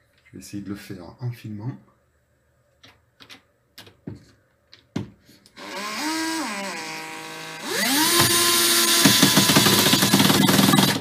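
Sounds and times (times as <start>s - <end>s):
cordless drill driving a screw: 5.6s - 11.0s.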